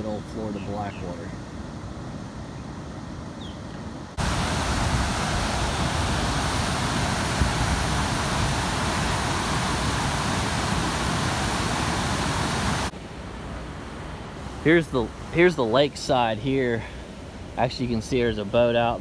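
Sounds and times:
water rushing through spillway: 4.2s - 12.9s.

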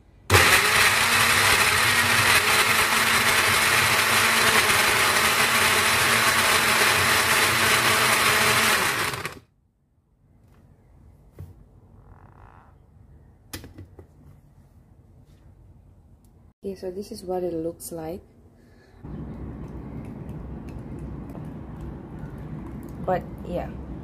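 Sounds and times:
countertop blender running: 0.3s - 9.4s.

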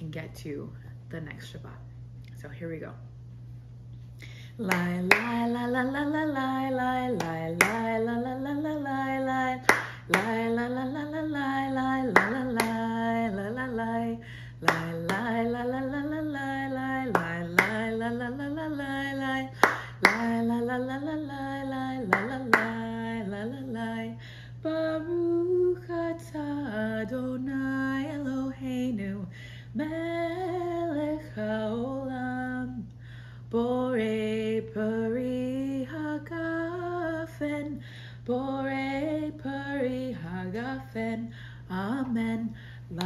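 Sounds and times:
woman singing: 4.2s - 43.0s
hand clapping: 4.6s - 5.4s, 7.2s - 7.9s, 9.6s - 10.4s, 12.1s - 12.8s, 14.6s - 15.3s, 17.1s - 17.9s, 19.6s - 20.4s, 22.1s - 22.8s.

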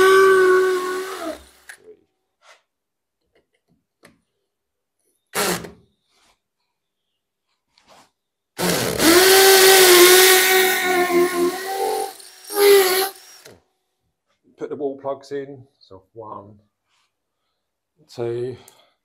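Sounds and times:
hammer drill drilling into concrete: 0.0s - 1.8s, 5.3s - 5.8s, 8.6s - 13.6s.

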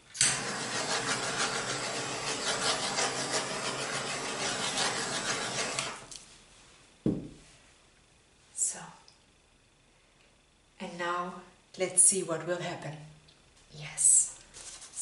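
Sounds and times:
brief thump: 7.0s - 7.4s.

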